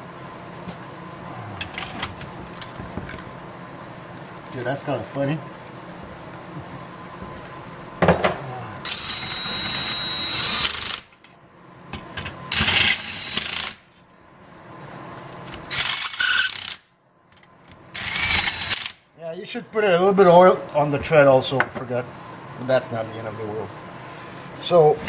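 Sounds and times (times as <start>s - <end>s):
impact wrench bursts: 8.8s - 11.2s, 15.7s - 16.9s, 17.9s - 19.0s.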